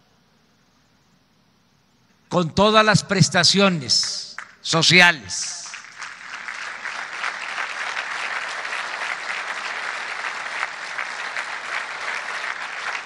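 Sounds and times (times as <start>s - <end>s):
large crowd applauding: 5.4s - 13.0s.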